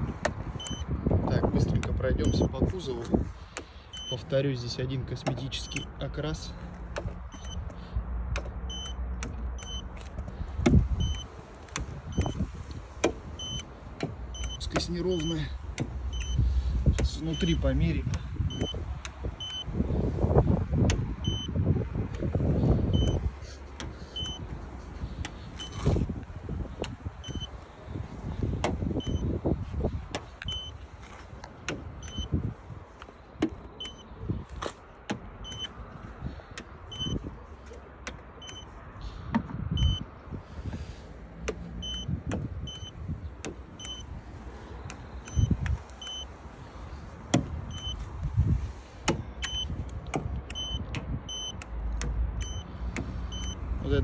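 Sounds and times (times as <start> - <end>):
car door thumps and clicks: 0.0 - 2.7, 5.0 - 6.0, 6.7 - 17.3, 28.1 - 40.1, 41.4 - 44.1, 47.1 - 53.2.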